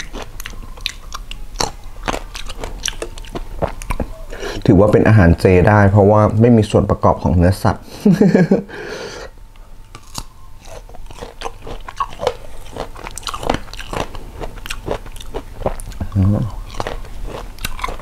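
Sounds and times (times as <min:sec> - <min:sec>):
crunchy fruit chewing: 0:00.0 - 0:04.3, 0:09.8 - 0:18.0.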